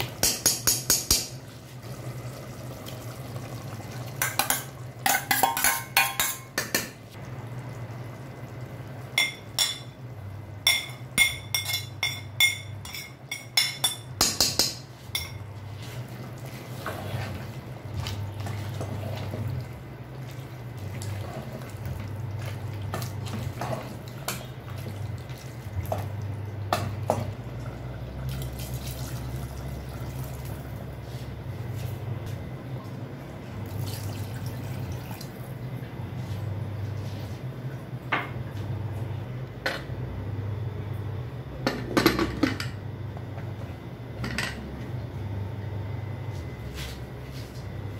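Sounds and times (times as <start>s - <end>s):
metal spoon clanking on pot: 4.2s - 7.0s, 10.6s - 15.4s.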